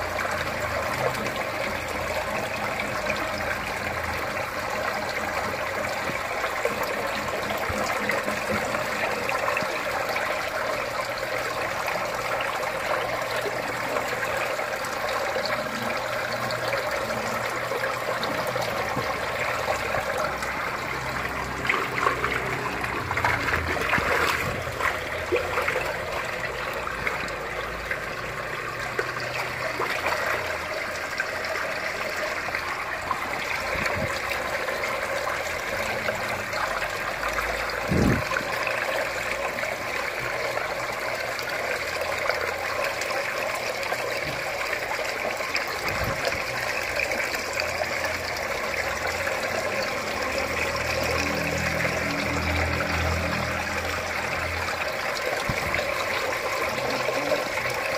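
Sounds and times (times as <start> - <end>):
water trickling in a tank: 0.0 - 57.9
fish splashing in a net: 8.5 - 35.8.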